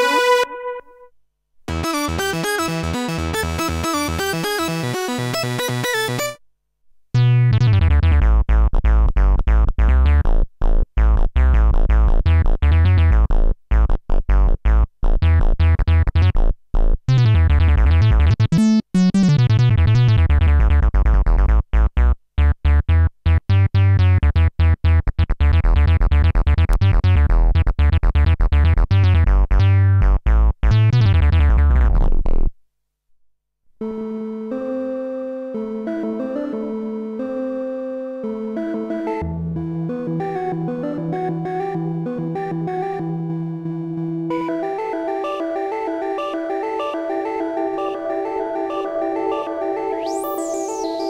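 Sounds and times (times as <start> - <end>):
synthesizer bass line: 33.8 - 51.0.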